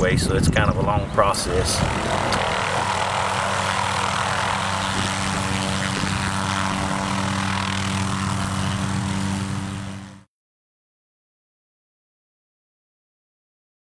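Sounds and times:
helicopter hovering drone: 0.0s - 10.3s.

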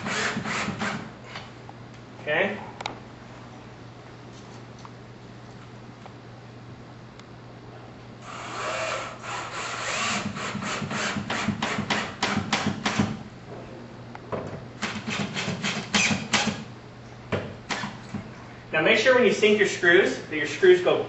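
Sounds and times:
power drill driving screws: 0.0s - 1.0s, 8.2s - 11.8s.

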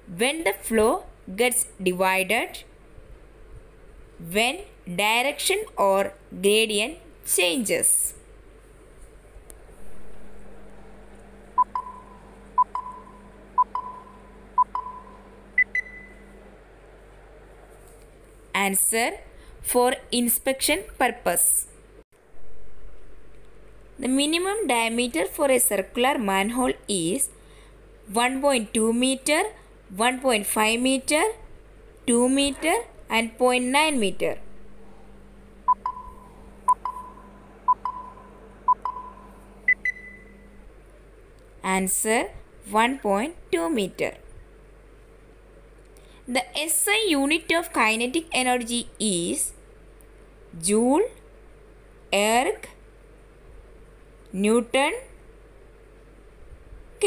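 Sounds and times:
soft sound: 8.2s - 18.5s
electronic timer pings: 11.6s - 16.2s, 35.7s - 40.3s.

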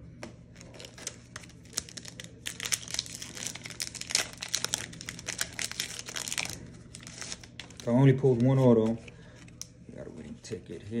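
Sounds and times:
foil wrapper crinkling and tearing: 0.6s - 8.6s.

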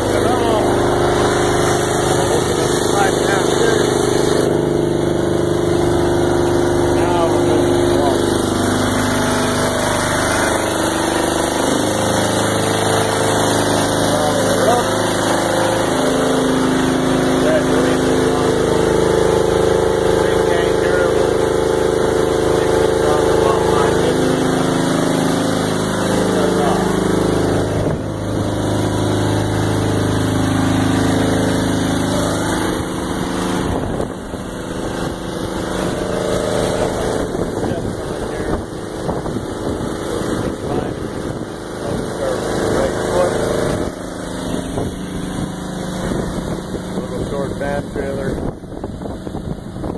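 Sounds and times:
engine running steadily: 0.0s - 49.9s.

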